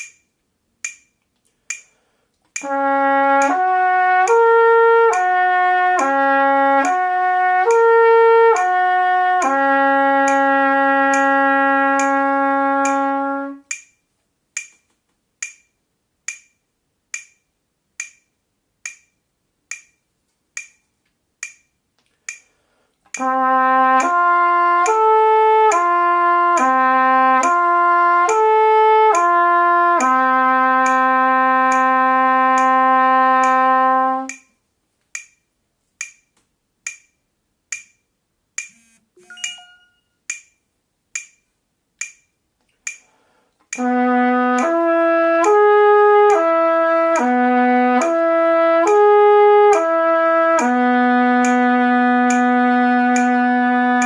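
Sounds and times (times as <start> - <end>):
metronome clicking: 0.0 - 9.6, 10.2 - 23.4, 24.0 - 26.8, 30.0 - 30.2, 30.8 - 31.1, 31.7 - 31.9, 32.5 - 32.8, 33.4 - 44.8, 45.4 - 46.5, 47.1 - 50.0, 50.6 - 54.0
trumpet playing slurs: 2.6 - 13.7, 23.1 - 34.4, 43.7 - 54.0.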